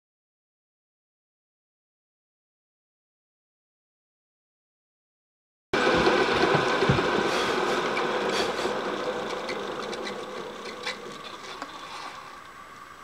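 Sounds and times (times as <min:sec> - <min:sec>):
milling machine spindle running: 0:05.8 - 0:13.0.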